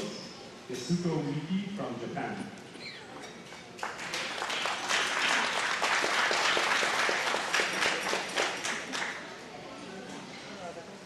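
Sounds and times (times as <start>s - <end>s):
audience applauding: 3.8s - 9.2s.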